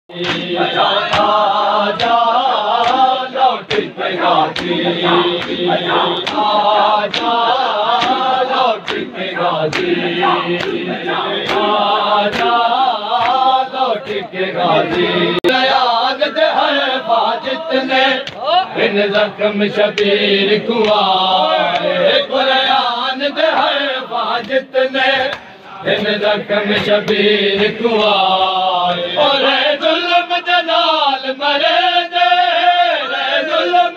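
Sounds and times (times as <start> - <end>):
men chanting a lament: 0.1 - 33.9
hands slapping on chests: 0.2 - 14.2, 20.8 - 21.1.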